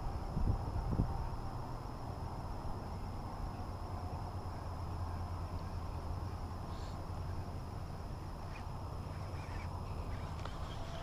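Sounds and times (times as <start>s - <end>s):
wind rumble on microphone: 0.0s - 6.7s.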